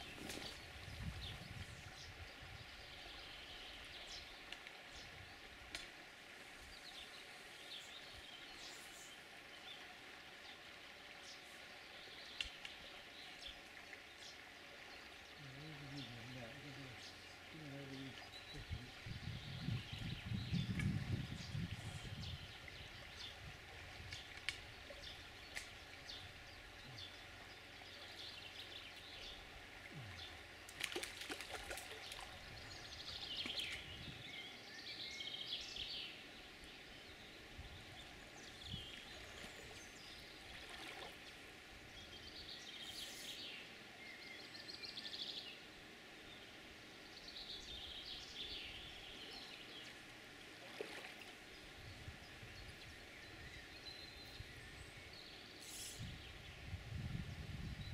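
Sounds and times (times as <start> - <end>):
birdsong: 0.0 - 57.9.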